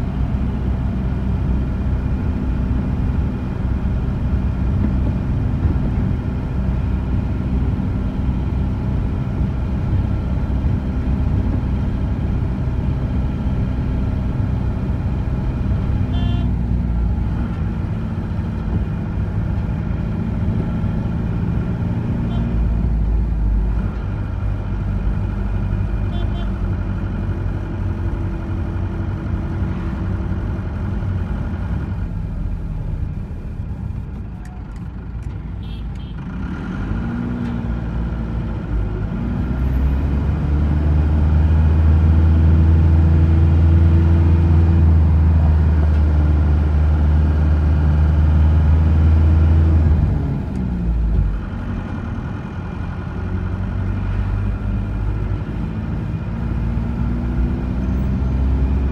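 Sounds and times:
vehicle engine and road noise: 0.0 - 58.9.

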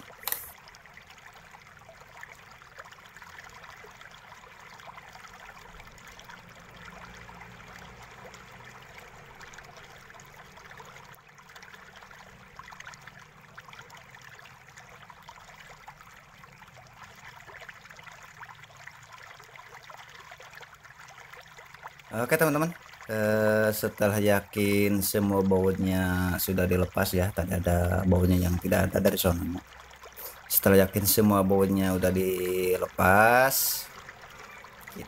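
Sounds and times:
faint steady hiss: 22.1 - 35.0.

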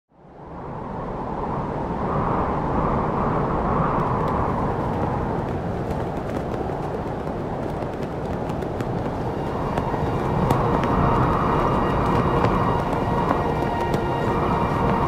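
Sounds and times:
low rumbling noise: 0.2 - 15.0
faint crackles: 3.7 - 15.0.

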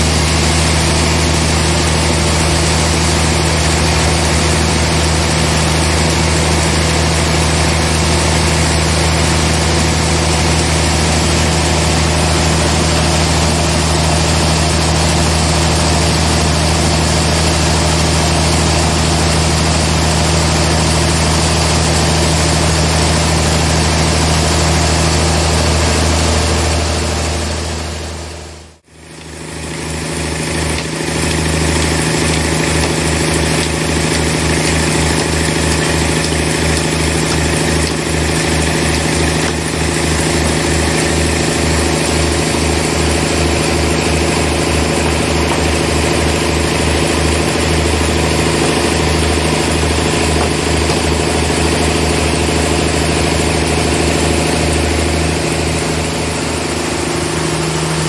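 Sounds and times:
sawmill machinery humming: 0.0 - 58.0.

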